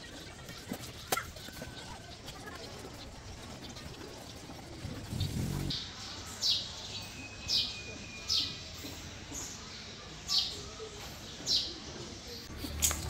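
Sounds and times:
bird chirping: 1.4 - 9.6.

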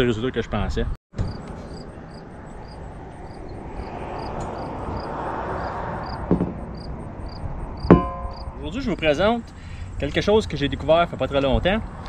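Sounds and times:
distant rush: 1.3 - 10.6
soft knock: 6.3 - 6.6.

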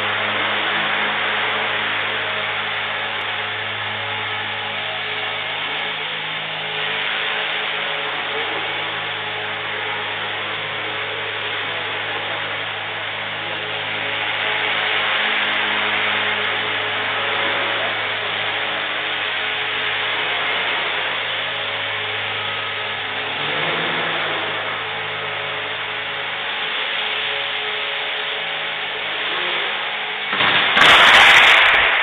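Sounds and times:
rotor rushing hiss: 22.2 - 32.0.

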